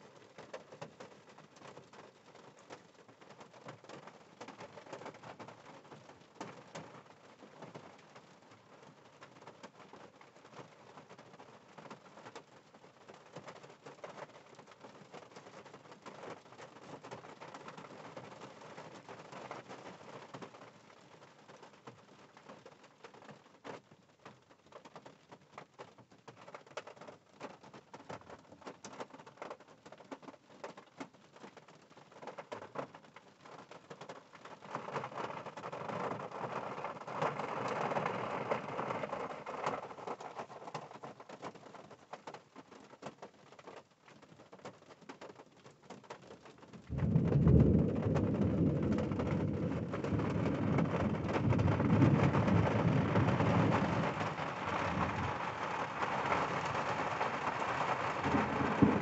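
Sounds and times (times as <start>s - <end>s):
rain falling: 0.0s - 59.0s
deep rumble of thunder: 46.9s - 55.5s, 58.2s - 59.0s.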